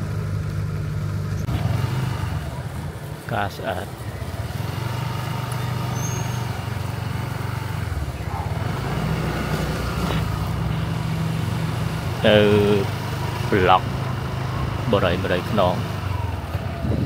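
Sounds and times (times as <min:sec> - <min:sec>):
vehicle engine humming: 0:00.0 - 0:17.0.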